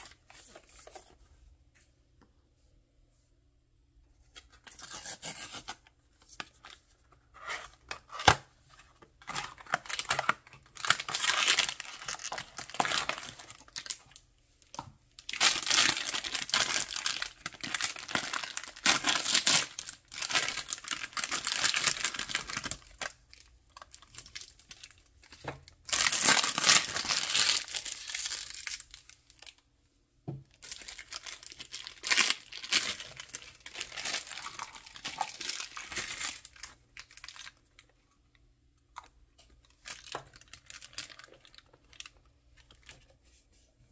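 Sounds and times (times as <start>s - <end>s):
foil bag crinkling and tearing: 9.2s - 14.2s, 15.2s - 25.1s, 25.8s - 29.5s, 30.6s - 37.6s, 39.8s - 42.9s.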